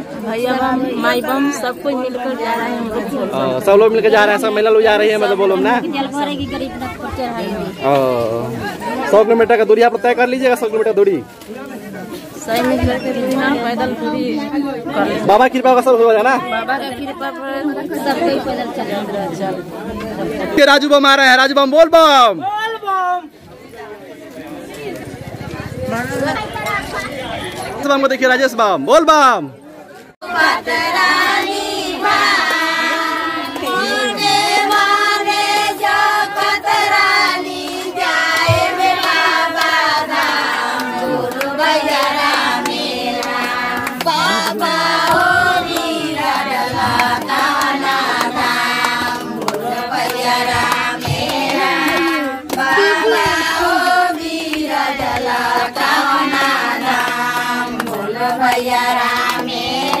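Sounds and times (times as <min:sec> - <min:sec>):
women singing in chorus: 0:00.0 - 0:08.0, 0:12.4 - 0:15.4, 0:30.2 - 1:00.0
hand-clapping: 0:31.4 - 0:35.6, 0:36.9 - 1:00.0.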